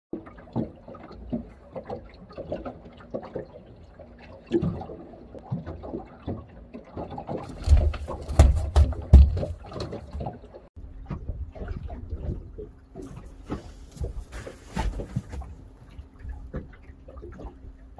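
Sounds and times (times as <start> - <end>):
waves lapping against boat hull: 0.1 - 17.9
heavy thumps on hull: 7.6 - 9.9.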